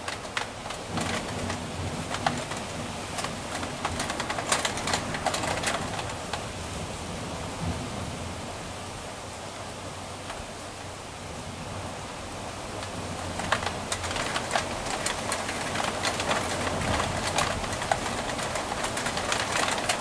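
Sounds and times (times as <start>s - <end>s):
sharp irregular ticks: 0.0s - 6.4s, 12.8s - 20.0s
heavy rain falling: 0.0s - 20.0s.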